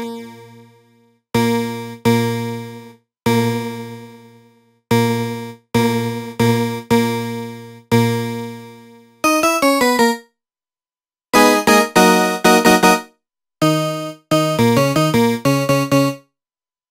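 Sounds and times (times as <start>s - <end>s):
bright synthesizer notes: 11.4s - 16.2s.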